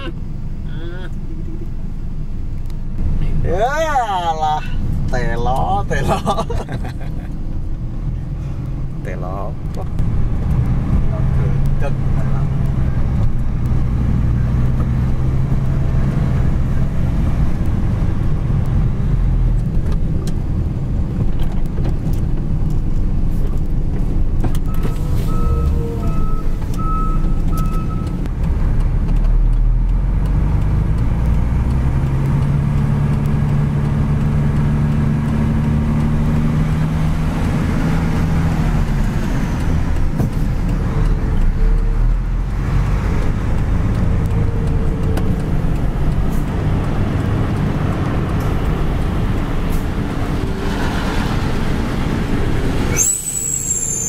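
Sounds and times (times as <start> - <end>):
truck diesel engine running: 22.3 - 53.7.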